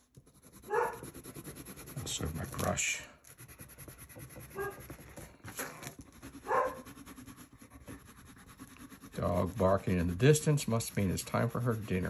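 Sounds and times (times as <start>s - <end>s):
distant dog barking: 0.7s - 1.1s, 4.5s - 4.8s, 6.4s - 6.9s.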